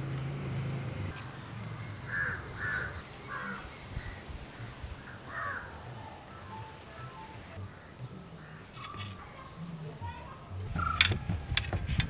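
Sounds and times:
crow cawing: 0:01.9 - 0:11.1.

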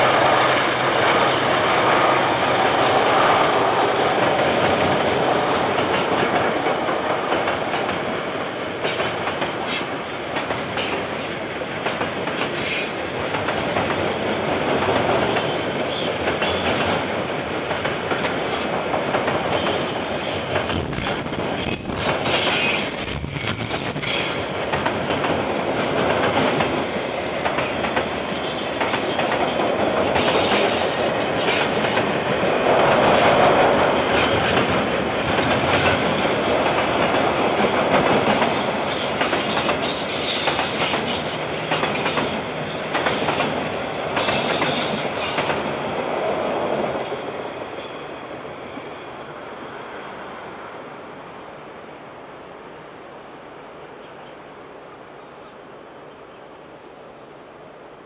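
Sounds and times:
freight train wheels clattering: 0:08.8 - 0:45.8.

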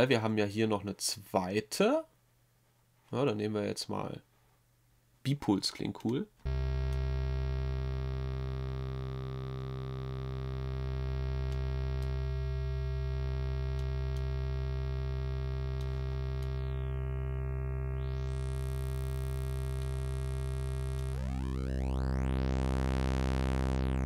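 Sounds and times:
low synthesizer note: 0:06.5 - 0:24.0.

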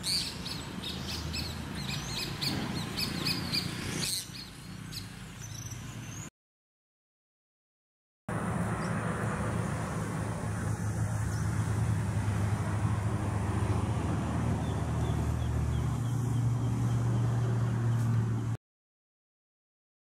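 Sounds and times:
vehicle engine rumbling: 0:08.3 - 0:18.6.

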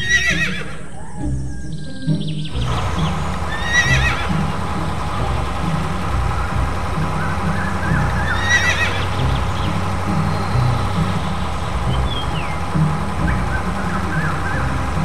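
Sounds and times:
horse whinny: 0:00.0 - 0:01.1, 0:03.5 - 0:04.6, 0:08.2 - 0:09.4
steady low rumble: 0:02.5 - 0:15.0.

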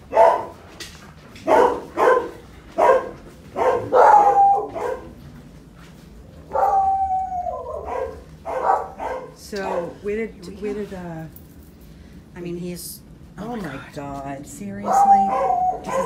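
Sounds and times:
dog barking: 0:00.1 - 0:00.6, 0:01.4 - 0:05.2, 0:06.5 - 0:10.0, 0:14.8 - 0:16.0
dog's long falling cry: 0:06.5 - 0:07.9.

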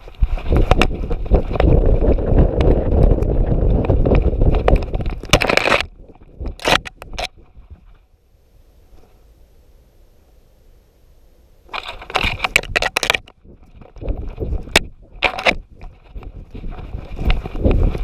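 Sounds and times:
camera bumping and rustling: 0:00.0 - 0:07.6, 0:11.7 - 0:18.0.

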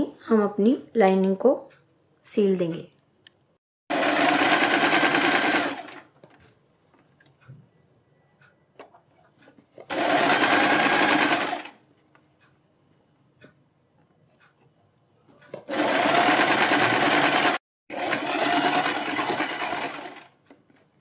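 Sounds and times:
sewing machine stitching: 0:03.9 - 0:06.1, 0:09.8 - 0:11.8, 0:15.5 - 0:20.4.

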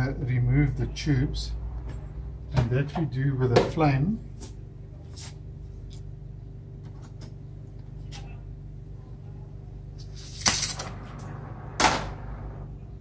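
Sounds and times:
steady low hum: 0:00.0 - 0:13.0
gas torch rushing: 0:10.0 - 0:12.7.

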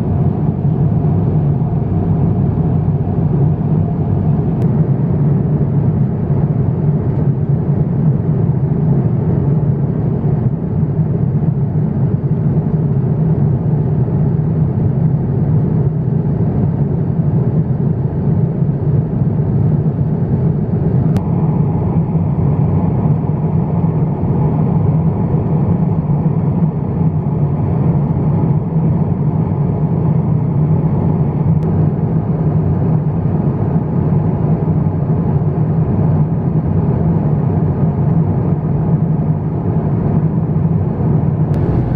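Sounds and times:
airliner cabin rumble: 0:00.0 - 0:10.4, 0:40.8 - 0:41.9.

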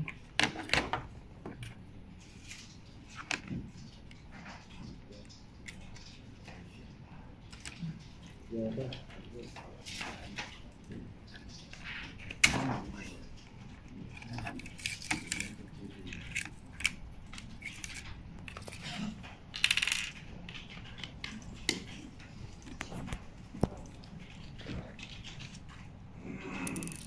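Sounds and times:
small hard objects clicking: 0:26.6 - 0:27.0.

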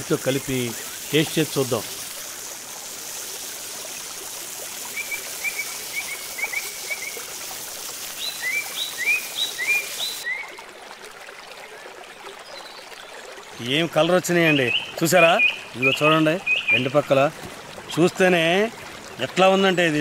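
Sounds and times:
fish sizzling in oil: 0:00.0 - 0:10.3
short chirping calls: 0:08.2 - 0:10.3, 0:14.5 - 0:17.0.

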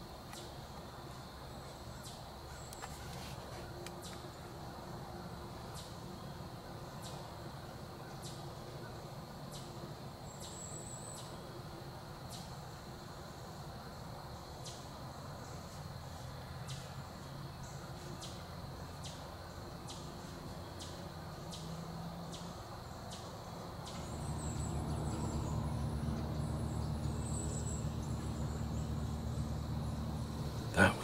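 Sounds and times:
insect sharp chirps: 0:00.0 - 0:31.0
low steady hum: 0:22.5 - 0:31.0.

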